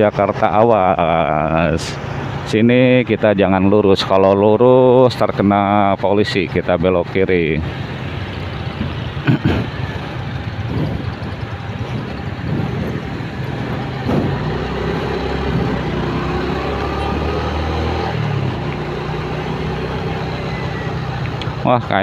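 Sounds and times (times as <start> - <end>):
road and traffic noise: 0.0 - 22.0
motorcycle engine running: 7.4 - 21.8.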